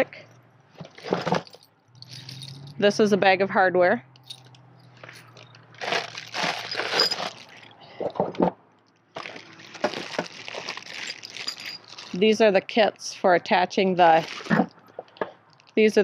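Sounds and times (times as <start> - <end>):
plastic bags crinkling: 5.0 - 7.8, 9.1 - 12.3, 14.0 - 14.7.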